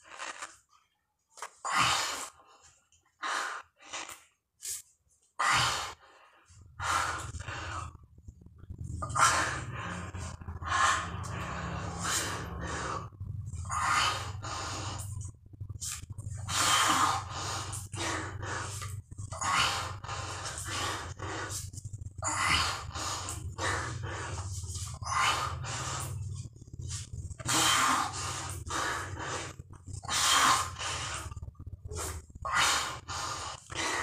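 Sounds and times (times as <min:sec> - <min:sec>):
man breathing heavily: 0:01.6 - 0:34.0
steady low hum: 0:04.7 - 0:34.0.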